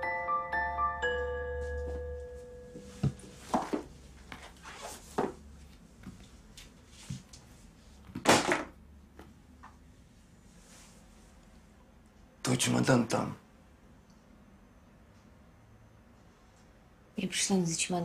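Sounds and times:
mallet percussion music: 0:00.0 - 0:03.0.

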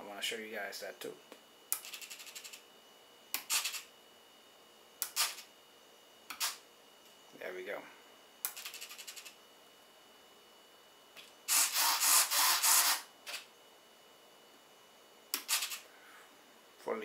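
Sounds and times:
servo buzzing whir: 0:11.5 - 0:13.5.

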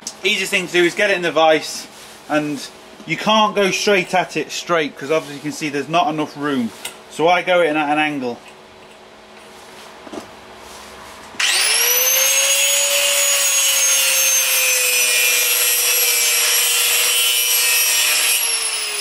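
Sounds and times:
angle grinder cutting steel: 0:11.4 - 0:19.0.

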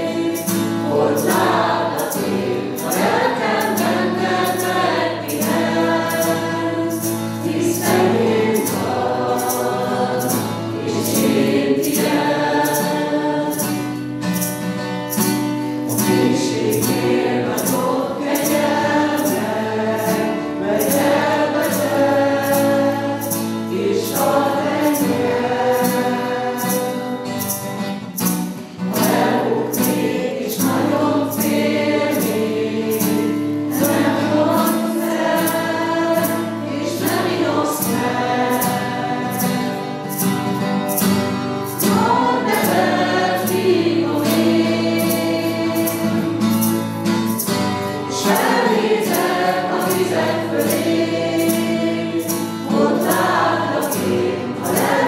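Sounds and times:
sharp ticking beat: 0:00.0 - 0:13.8
group singing a worship song: 0:00.0 - 0:55.0.

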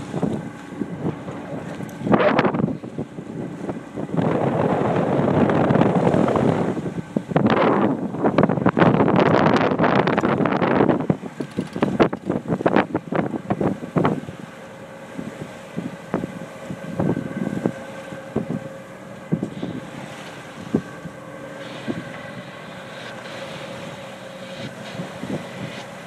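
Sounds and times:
water rushing past hull: 0:00.0 - 0:26.0
wind buffeting microphone: 0:00.0 - 0:26.0.

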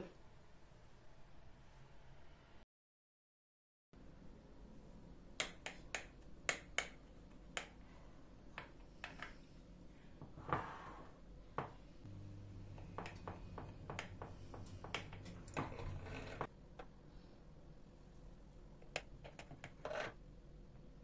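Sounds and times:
faint low hum: 0:11.3 - 0:21.0
knife scraping glass: 0:15.6 - 0:16.5.

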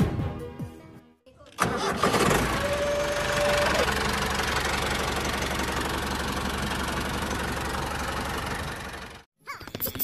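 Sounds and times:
tractor engine chugging: 0:01.6 - 0:09.3.

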